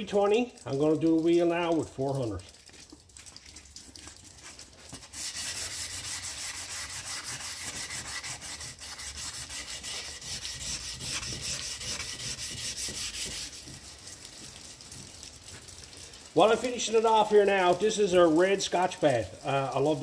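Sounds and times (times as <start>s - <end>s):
sandpaper rubbing on metal: 4.9s - 14.4s.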